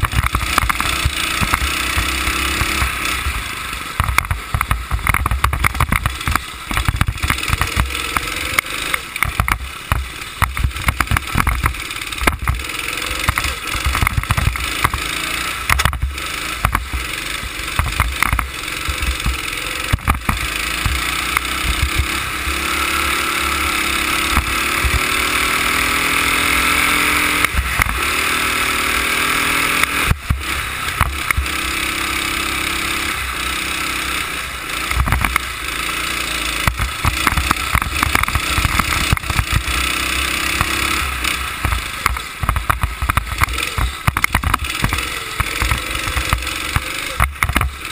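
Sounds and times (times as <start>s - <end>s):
go-kart engine accelerating: 0.0s - 47.9s.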